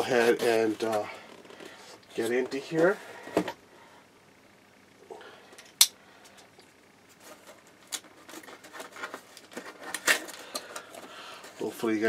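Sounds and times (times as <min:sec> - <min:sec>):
cardboard rustling and clicking: 0:07.2 - 0:11.8.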